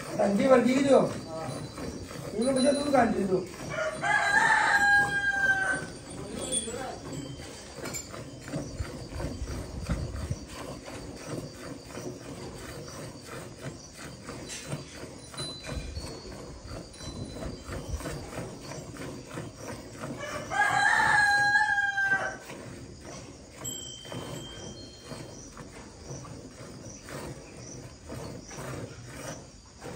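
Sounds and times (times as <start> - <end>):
rooster crowing: 3.6 - 6.0, 20.2 - 22.4.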